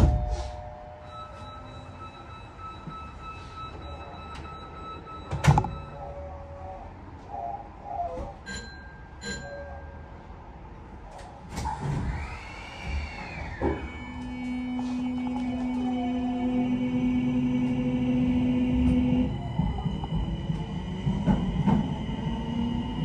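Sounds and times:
short beeps: 0.0 - 6.1, 8.5 - 10.0
rising and falling whine: 12.0 - 23.0.

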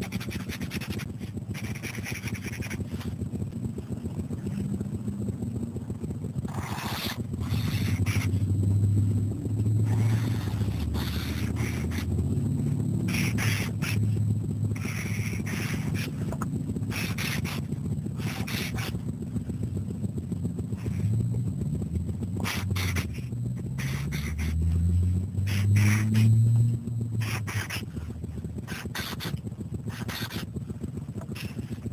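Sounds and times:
marker scratching on paper: 0.0 - 3.1, 6.5 - 8.4, 9.9 - 12.1, 13.1 - 14.2, 14.8 - 16.3, 16.9 - 19.0, 22.4 - 24.6, 25.5 - 26.3, 27.2 - 27.9, 28.7 - 30.4
low steady hum: 0.0 - 31.9.

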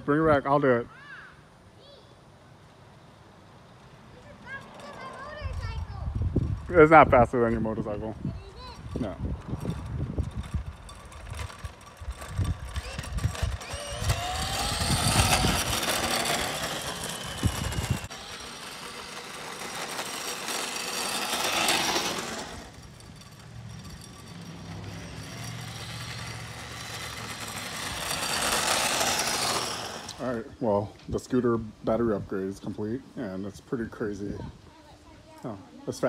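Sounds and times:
wheels rolling on asphalt: 2.4 - 34.0
electric scooter motor whining: 4.1 - 30.5.

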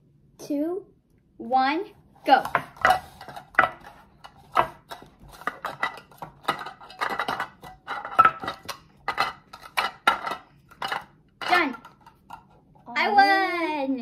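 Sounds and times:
plastic cups clattering: 2.4 - 12.8.

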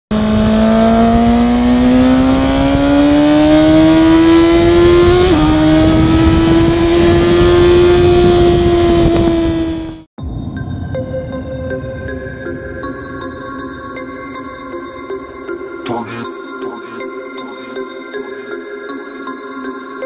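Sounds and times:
high-revving engine accelerating: 0.1 - 10.1.

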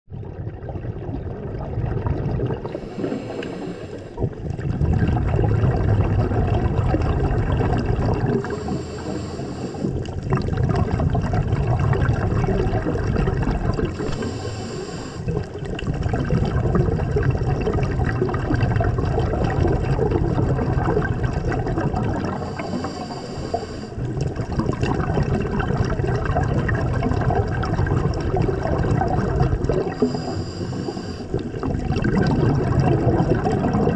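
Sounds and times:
bubbling underwater exhalations: 0.1 - 33.9
hissing regulator inhalation: 2.7 - 4.3, 8.3 - 10.0, 13.9 - 15.3, 22.3 - 24.1, 29.9 - 31.6.

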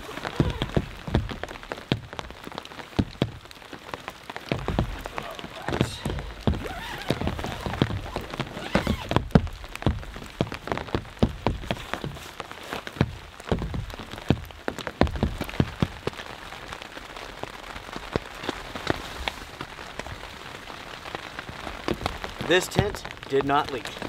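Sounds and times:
tent fabric rustling: 0.0 - 1.9, 4.4 - 14.3, 17.3 - 22.8
raindrops tapping: 0.0 - 24.0.

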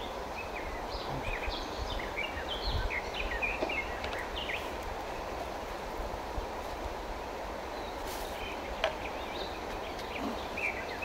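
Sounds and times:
songbird twittering: 0.0 - 5.4, 7.7 - 11.0.

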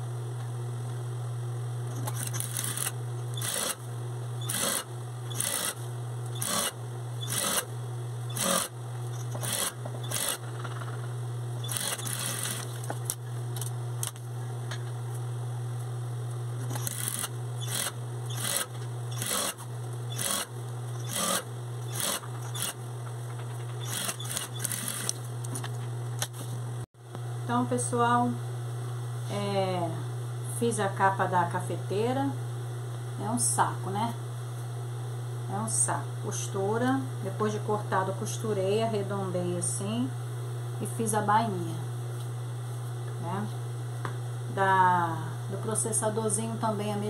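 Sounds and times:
sewing machine motor humming: 1.9 - 3.8, 4.4 - 7.7, 8.3 - 10.5, 11.6 - 13.1, 16.6 - 22.8, 23.8 - 25.2
sewing machine stitching bursts: 2.0 - 3.8, 4.4 - 5.8, 6.4 - 7.7, 8.3 - 10.4, 11.6 - 12.7, 16.6 - 22.8, 23.8 - 25.1.

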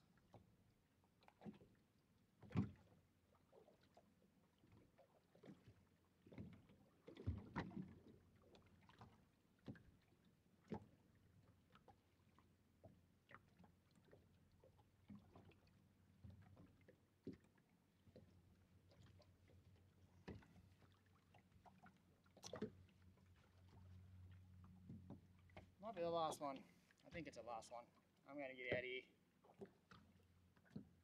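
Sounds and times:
faint knocks and taps on boat: 2.4 - 3.0, 12.8 - 21.0, 21.6 - 25.8, 28.6 - 31.0.

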